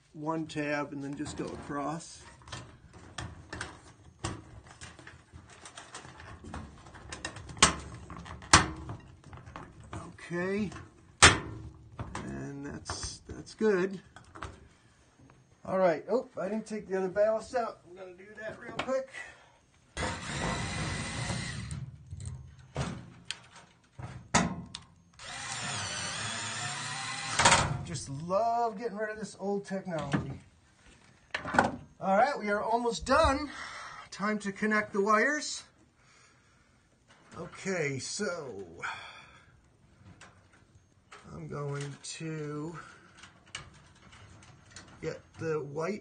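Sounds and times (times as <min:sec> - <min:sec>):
clicks and knocks of parts: 0:02.2 - 0:10.1, 0:21.6 - 0:25.7, 0:42.8 - 0:45.0
cordless screwdriver motor: 0:25.2 - 0:27.4.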